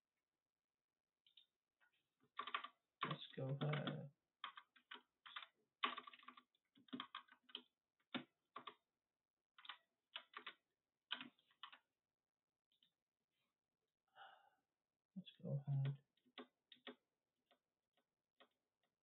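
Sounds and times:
typing on computer keyboard: 0:02.4 - 0:08.8, 0:09.6 - 0:11.8, 0:16.4 - 0:17.6.

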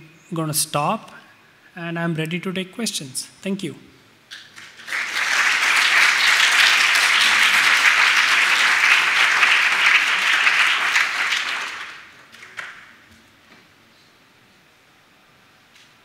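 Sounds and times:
audience applauding: 0:04.5 - 0:13.0.

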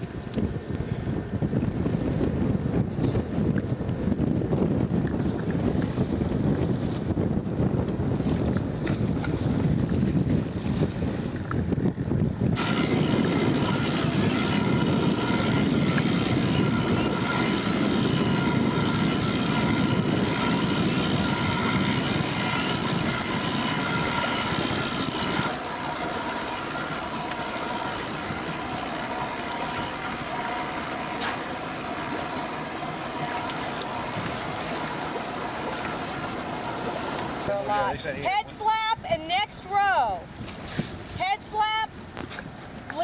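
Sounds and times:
boat motor running: 0:00.0 - 0:43.0
wind noise on microphone: 0:00.0 - 0:43.0.

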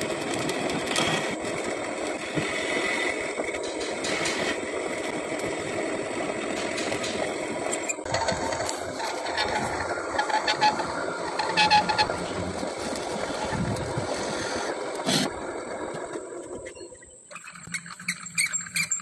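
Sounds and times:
metal lathe humming: 0:00.0 - 0:16.7
cutting tool scraping steel: 0:06.4 - 0:15.3.

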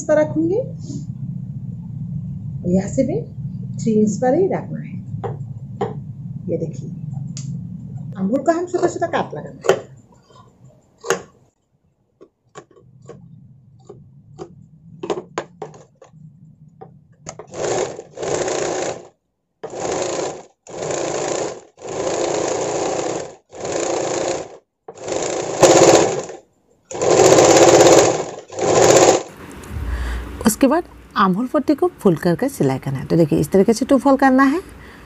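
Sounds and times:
sewing machine stitching: 0:17.3 - 0:29.4.

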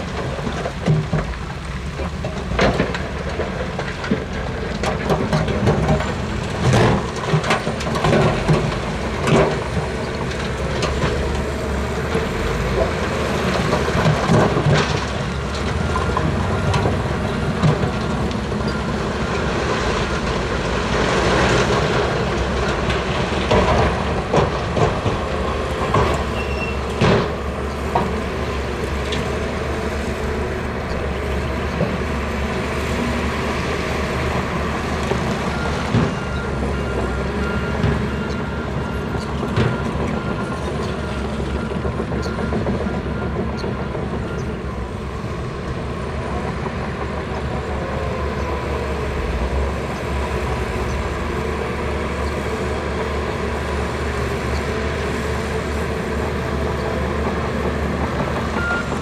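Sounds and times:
heavy machinery engine rumble: 0:00.0 - 0:59.0.

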